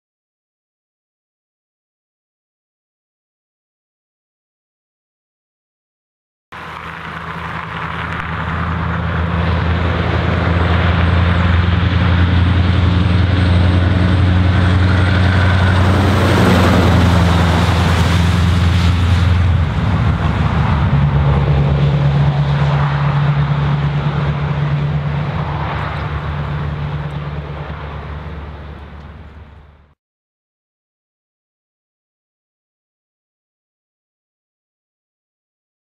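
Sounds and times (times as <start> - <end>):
diesel truck engine passing: 6.6 - 30.0.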